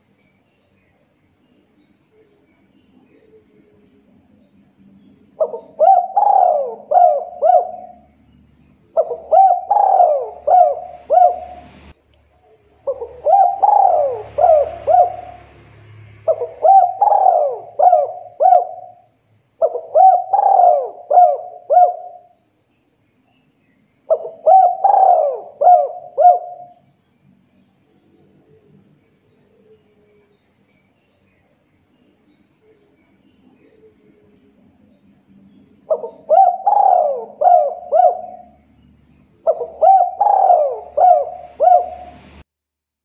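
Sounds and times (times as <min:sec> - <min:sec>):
dove cooing: 0:05.3 - 0:08.2, 0:08.9 - 0:11.9, 0:12.5 - 0:22.4, 0:24.1 - 0:26.9, 0:33.5 - 0:42.4.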